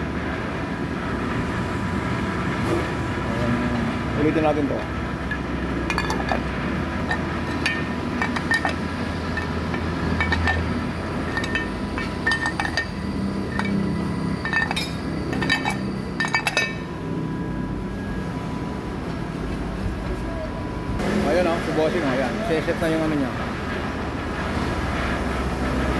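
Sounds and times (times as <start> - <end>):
steady machine hum: 0.0 - 25.9
metal covers clinking on engine: 4.2 - 17.0.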